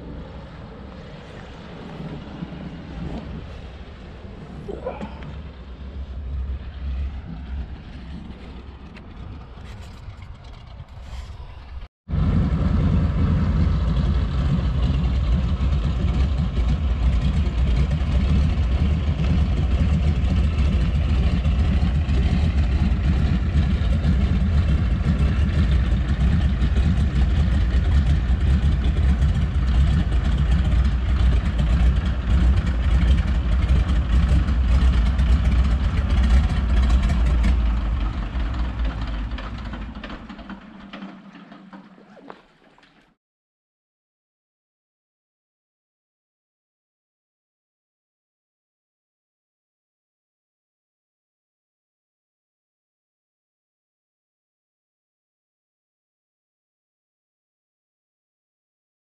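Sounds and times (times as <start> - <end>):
engine drone with low rumble: 0.0 - 42.8.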